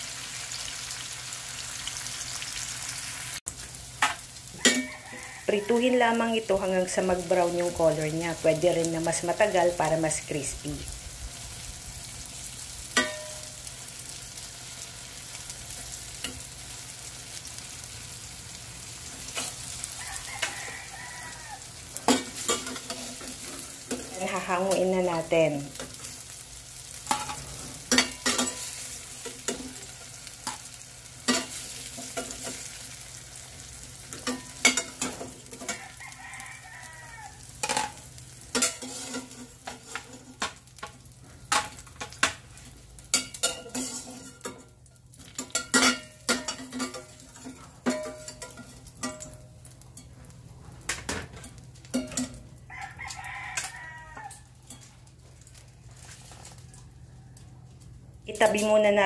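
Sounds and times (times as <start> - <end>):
oil sizzling: 0.0 - 59.0
rooster crowing: 4.5 - 5.9, 19.9 - 21.8, 35.6 - 37.6, 52.7 - 54.6, 56.6 - 57.8
metal spatula scraping frying pan: 18.9 - 21.3, 21.9 - 36.4, 37.6 - 40.9, 43.1 - 49.4.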